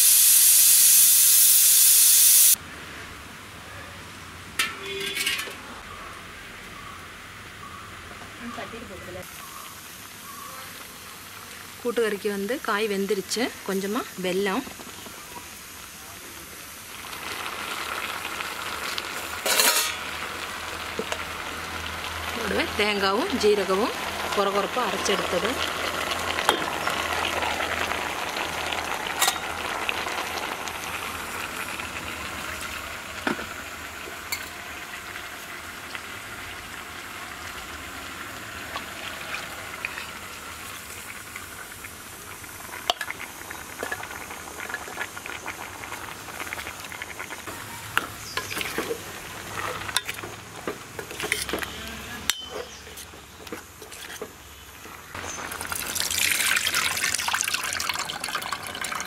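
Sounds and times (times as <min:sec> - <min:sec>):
curry sizzling: 0:00.0 - 0:02.6, 0:08.4 - 0:59.0
ladle clinking on metal pot: 0:04.6 - 0:05.6, 0:19.5 - 0:20.0, 0:52.3 - 0:52.8.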